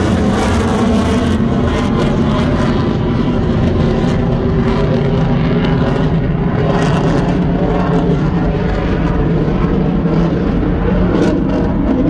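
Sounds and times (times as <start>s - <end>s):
jet flying overhead: 0.0s - 12.0s.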